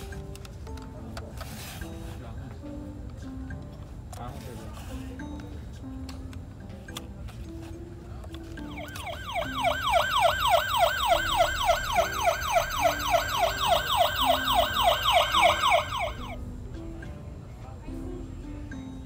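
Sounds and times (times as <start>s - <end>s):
toy ambulance siren wailing: 8.7s - 16.4s.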